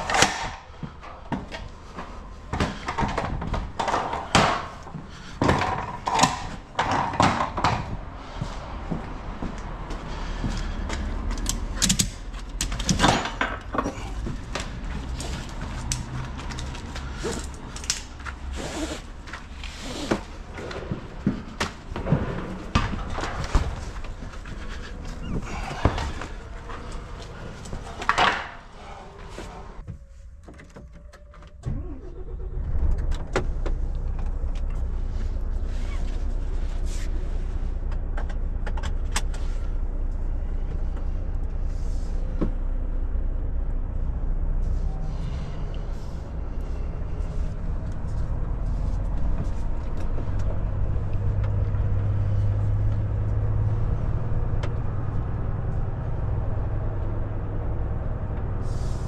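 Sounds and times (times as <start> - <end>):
knocks and rustles: 0.0 - 9.8, 10.4 - 31.2.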